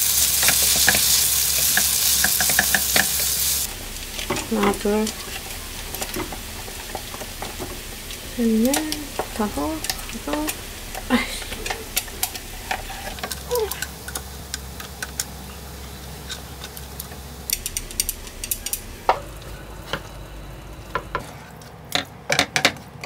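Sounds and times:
food sizzling in a frying pan: 0.0s - 21.3s
chopsticks and spatula clicking on pan: 0.3s - 3.3s.

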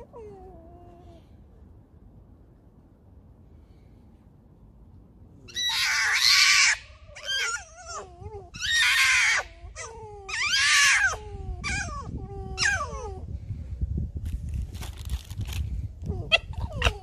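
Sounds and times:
foxes squealing: 5.5s - 13.2s, 16.2s - 17.0s.

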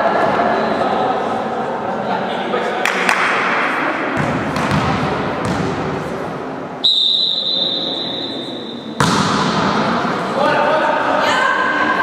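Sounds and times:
sports hall noise: 0.0s - 12.0s
referee's whistle blast: 6.8s - 8.9s.

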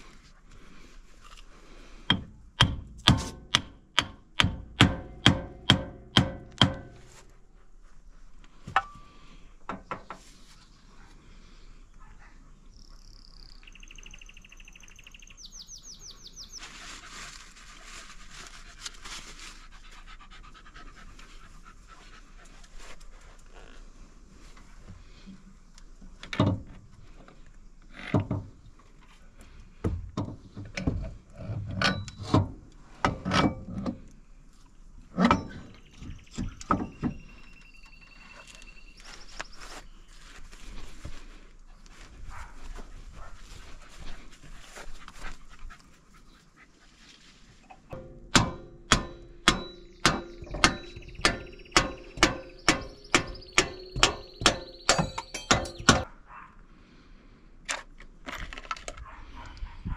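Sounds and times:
metal parts knocking and clanking: 48.0s - 56.0s
hammer blows on metal: 48.0s - 56.1s.

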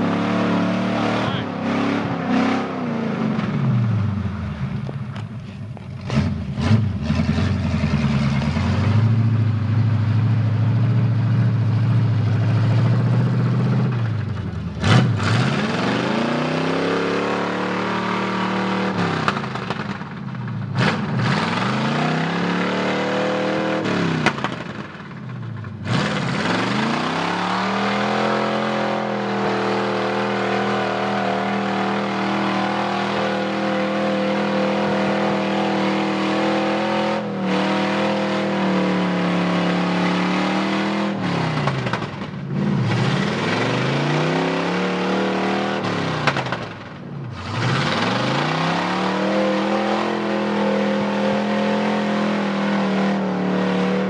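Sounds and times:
pickup truck engine revving: 0.0s - 4.7s, 14.7s - 20.1s, 20.7s - 25.0s, 25.8s - 54.0s.

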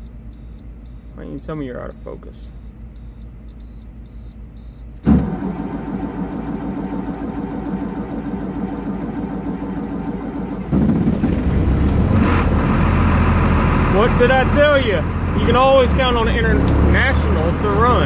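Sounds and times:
dashboard beeper beeping: 0.0s - 10.9s, 11.6s - 18.0s
diesel engine running: 5.0s - 18.0s
starter cranking engine: 5.0s - 18.0s.

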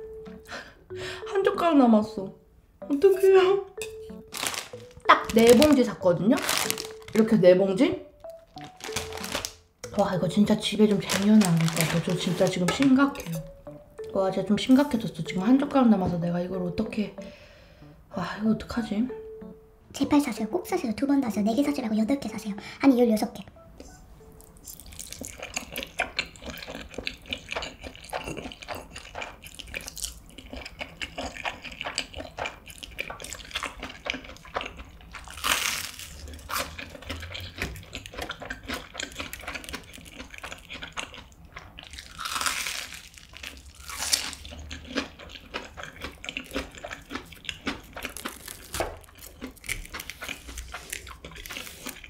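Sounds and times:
chewing: 24.6s - 52.0s.

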